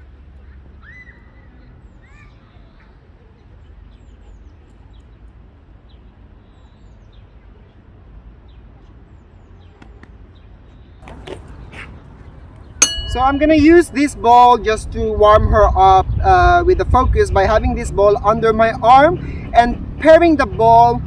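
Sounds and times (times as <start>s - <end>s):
small birds chirping: 0.2s - 14.6s.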